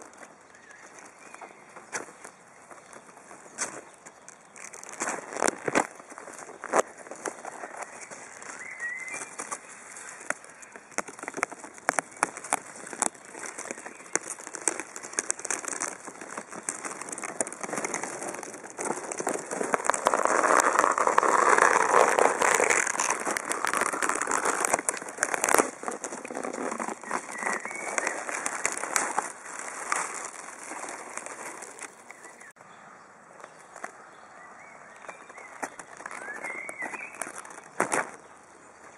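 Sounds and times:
dense crackling and clicking: 4.6s - 32.6s.

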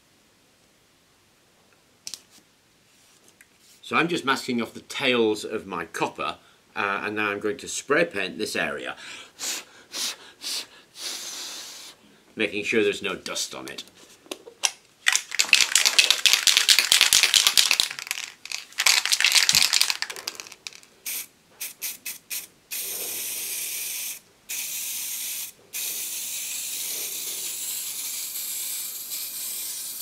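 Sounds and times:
aerosol spray hissing: 9.4s - 12.0s, 19.7s - 30.0s
aerosol can mixing ball rattling: 15.0s - 21.3s.

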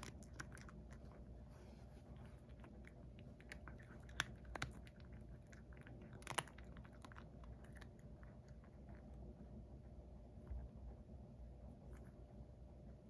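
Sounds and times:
cat crunching dried fish: 0.0s - 9.5s.

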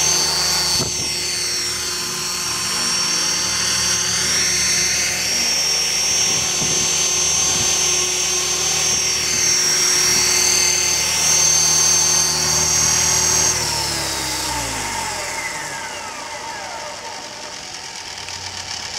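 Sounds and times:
model helicopter rotor noise: 0.0s - 18.9s
steady high whine: 0.0s - 18.9s.

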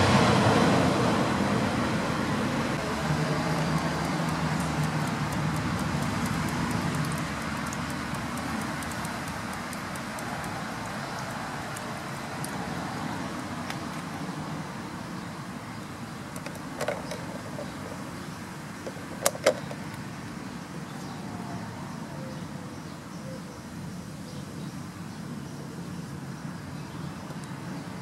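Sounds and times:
outdoor background noise: 0.0s - 28.0s
sharp clicks: 3.5s - 12.6s.

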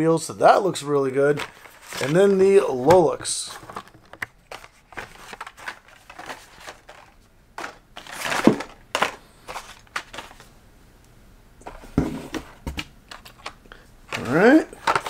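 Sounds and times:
plastic packaging clicks and crinkling: 1.3s - 10.5s, 12.8s - 15.0s.

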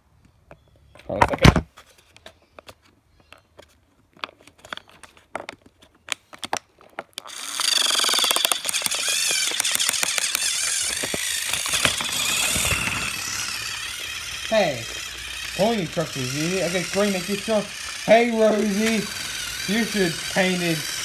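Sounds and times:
toy train motor whirring: 7.2s - 21.0s.

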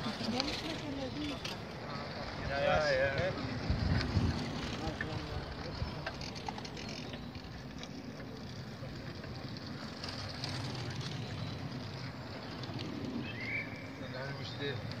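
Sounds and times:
bicycles rolling on asphalt: 0.0s - 15.0s
faint voices: 0.0s - 15.0s
wind on microphone: 3.5s - 4.7s.

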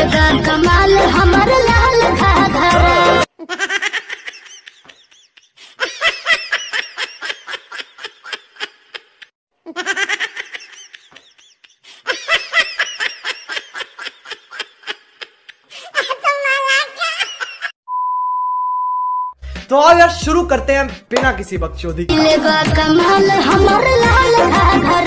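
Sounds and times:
person laughing: 2.8s - 16.3s.

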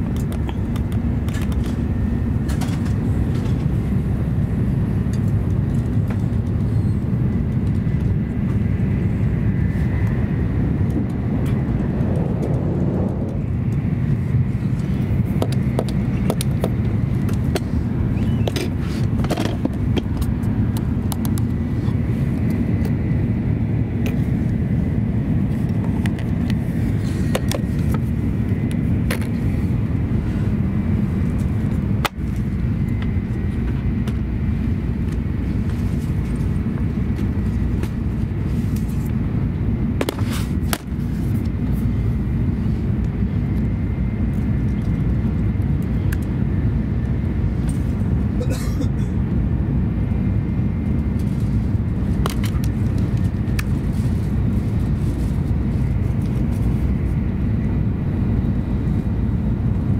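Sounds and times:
train cabin low rumble: 0.0s - 59.9s.

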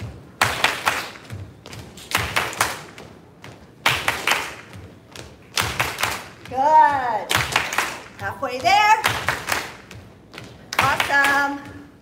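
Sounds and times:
hand claps: 0.4s - 1.3s, 2.0s - 3.0s, 3.8s - 4.7s, 5.5s - 6.4s, 7.3s - 8.2s, 9.0s - 9.9s.

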